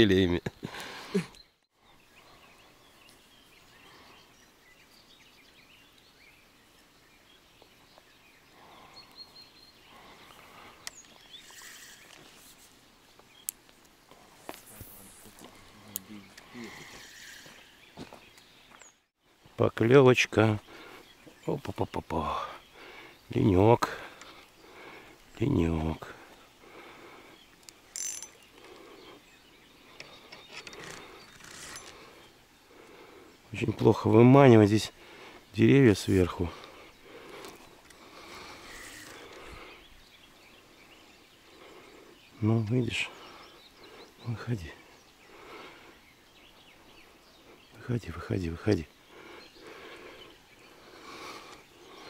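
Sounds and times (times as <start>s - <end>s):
distant bird chirps: 0.0s - 52.0s
fishing reel clicking and whirring: 27.9s - 28.4s
fishing reel rattle: 27.9s - 28.4s.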